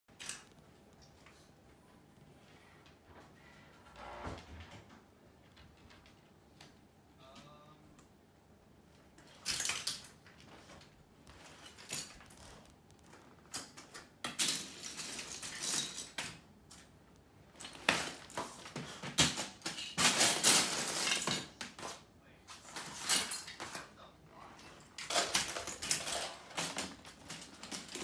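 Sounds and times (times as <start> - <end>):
plastic bricks clattering in a bin: 9.2 - 16.9, 17.6 - 22.0, 24.8 - 28.0.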